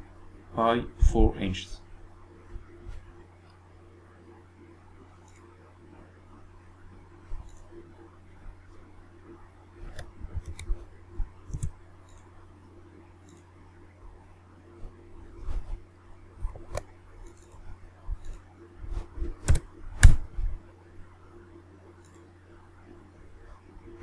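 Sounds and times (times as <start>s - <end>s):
steady low hum: 0.0s - 24.0s
mouse clicks: 7.4s - 7.7s, 9.9s - 10.8s, 19.4s - 20.2s, 22.0s - 22.3s
keyboard keystrokes: 19.4s - 20.2s.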